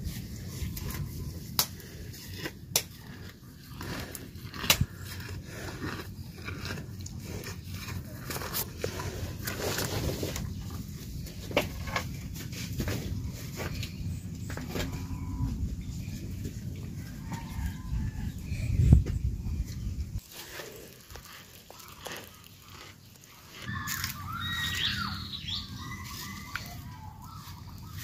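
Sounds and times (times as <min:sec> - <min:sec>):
low steady rumble: 0:00.0 - 0:20.2
cow chewing fodder: 0:00.0 - 0:28.0.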